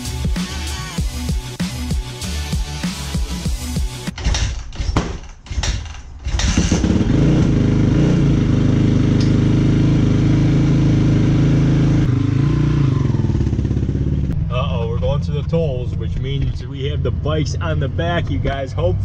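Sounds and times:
dirt bike engine starting and idling: 6.2s - 14.5s.

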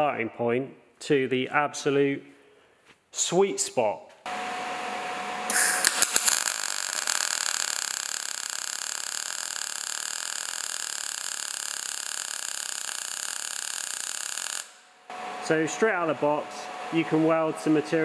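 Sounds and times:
man speaking: 0.0s - 2.3s, 3.1s - 4.1s, 15.4s - 18.0s
welding arc crackling: 5.5s - 15.0s.

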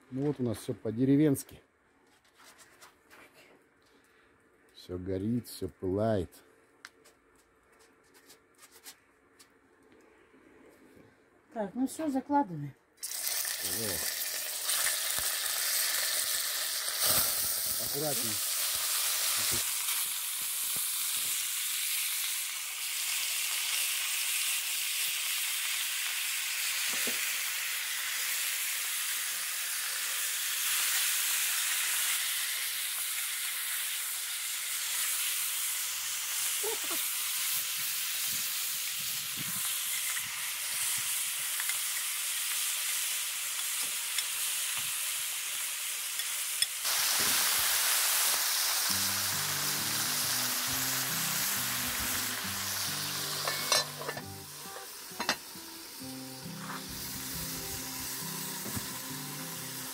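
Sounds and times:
meat sizzling in hot fat: 13.0s - 59.9s.

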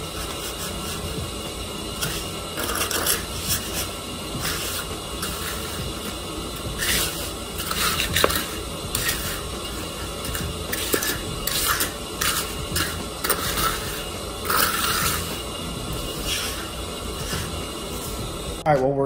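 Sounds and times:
trowel scraping wet concrete: 2.0s - 5.8s, 6.8s - 9.5s, 10.2s - 15.4s.

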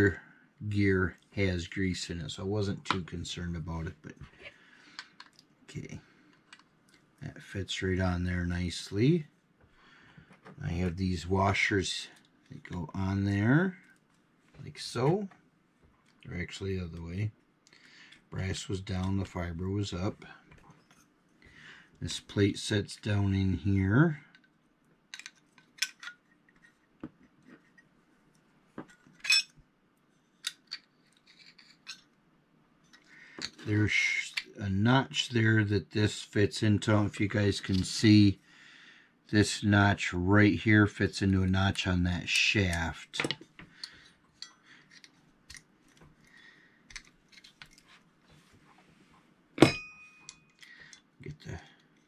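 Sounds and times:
loud ringing metallic clink: 49.6s - 50.5s.

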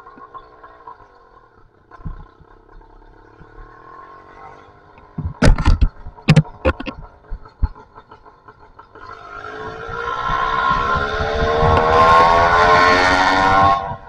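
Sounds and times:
two-stroke engine running: 0.0s - 14.0s
loud knocks and clatter: 2.0s - 2.8s, 5.0s - 8.2s.

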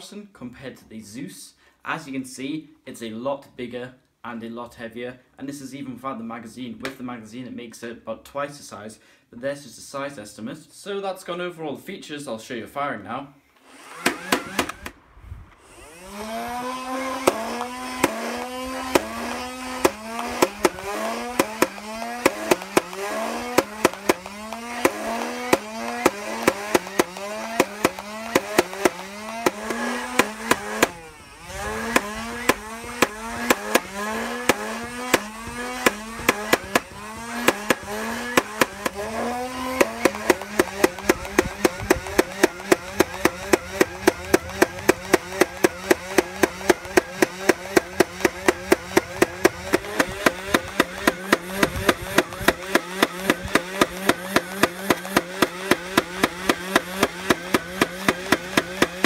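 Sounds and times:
toy blaster motor whine firing: 13.6s - 59.0s.

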